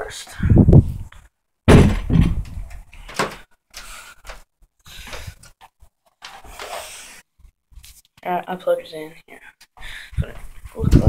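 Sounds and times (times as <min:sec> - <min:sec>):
loud thump: 0:01.7 - 0:02.6.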